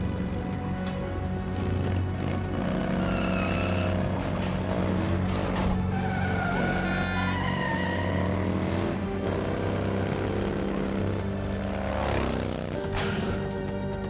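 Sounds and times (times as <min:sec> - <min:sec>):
vehicle engines running: 0:00.0 - 0:14.0
car tyres squealing: 0:02.6 - 0:09.8.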